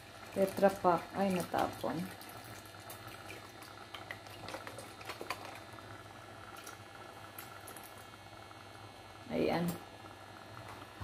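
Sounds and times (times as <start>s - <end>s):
liquid pouring: 0.0s - 8.8s.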